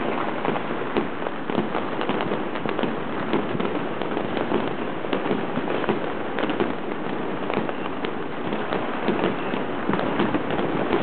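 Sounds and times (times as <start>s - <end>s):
fireworks crackling and banging: 0.0s - 11.0s.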